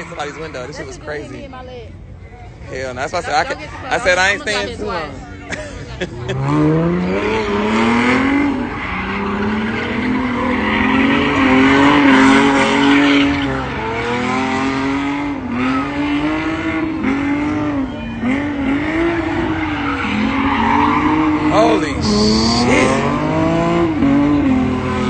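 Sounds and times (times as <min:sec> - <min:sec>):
tires screeching: 0:00.0 - 0:05.4, 0:06.0 - 0:25.0
car engine revving: 0:06.1 - 0:25.0.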